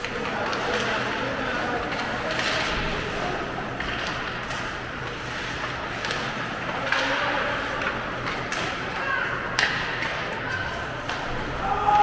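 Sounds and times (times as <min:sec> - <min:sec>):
hockey sticks and puck clacking: 0:00.0 - 0:12.0.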